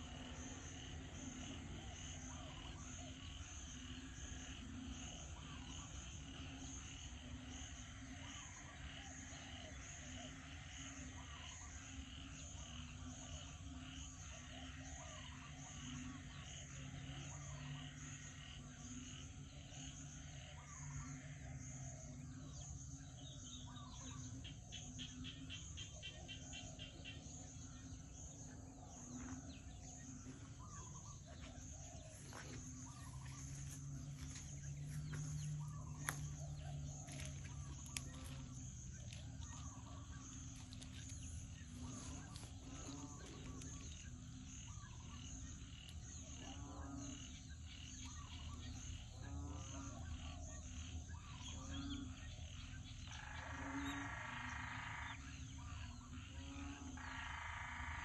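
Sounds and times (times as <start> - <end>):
birds calling: 23.6 - 49.5.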